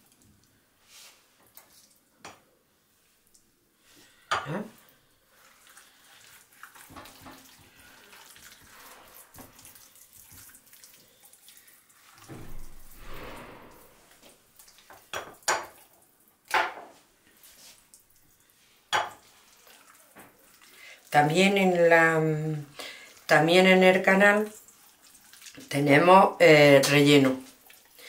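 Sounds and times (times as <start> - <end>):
hands squelching raw meat: 5.3 - 12.2, 24.5 - 25.6.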